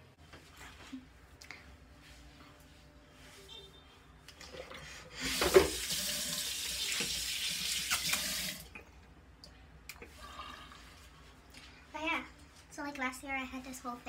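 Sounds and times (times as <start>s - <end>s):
tap water running into basin: 4.4s - 8.7s.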